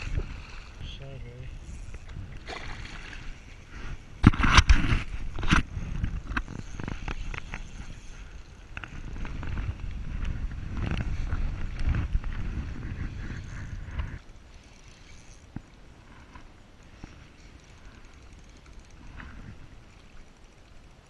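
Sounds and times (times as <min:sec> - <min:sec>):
sharp knocks and scraping: 0:03.8 - 0:08.1
fishing reel clicks: 0:16.8 - 0:21.0.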